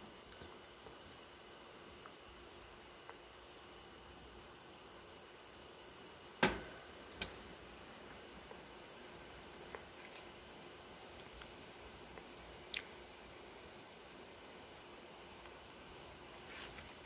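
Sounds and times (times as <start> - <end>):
crickets trilling: 0.0 - 17.0
sharp knocks: 6.4 - 6.8.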